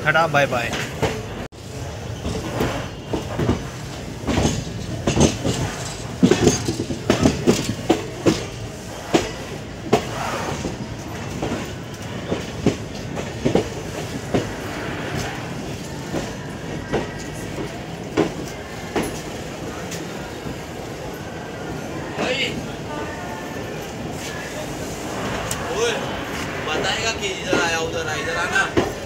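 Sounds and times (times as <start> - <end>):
train rolling rumble: 0.0 - 29.0
train wheels clacking: 2.1 - 21.1, 25.2 - 29.0.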